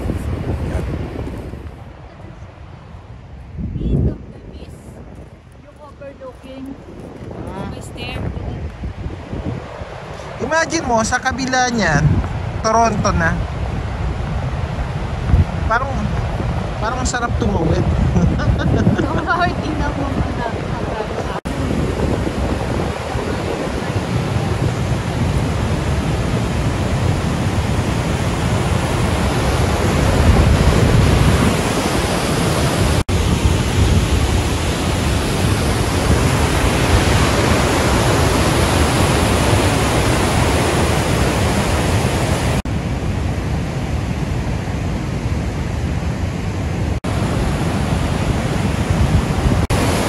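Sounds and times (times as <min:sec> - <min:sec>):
fast-flowing river rushing: 0:09.2 - 0:18.1, 0:19.1 - 0:50.0.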